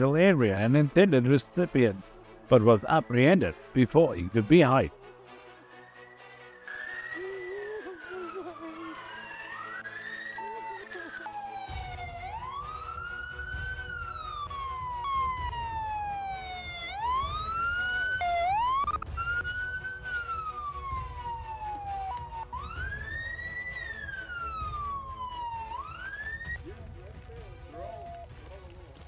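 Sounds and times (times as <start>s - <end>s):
police siren wailing: 6.2s - 26.7s.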